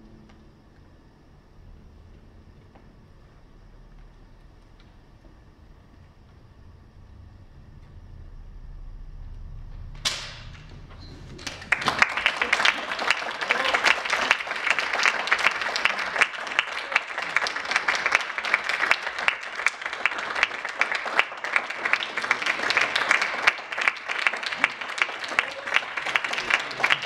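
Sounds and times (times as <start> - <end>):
audience applauding: 10.3 - 27.0.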